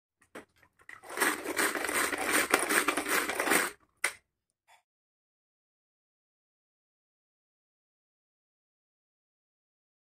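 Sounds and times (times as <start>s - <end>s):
plastic clatter: 0.2s - 4.2s
pull-cord chopper whirring and rattling: 1.0s - 3.8s.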